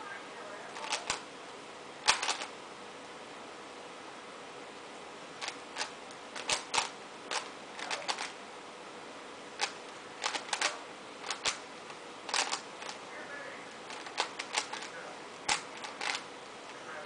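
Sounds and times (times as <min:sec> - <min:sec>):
puzzle cube clacking turns: 0:00.8 - 0:01.2, 0:02.0 - 0:02.5, 0:05.4 - 0:08.4, 0:09.6 - 0:13.1, 0:13.8 - 0:16.8.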